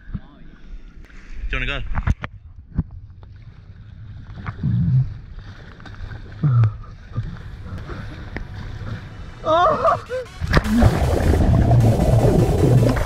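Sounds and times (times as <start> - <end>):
low rumble of water and wind: 0.0 - 13.0
paddles splashing water: 3.3 - 13.0.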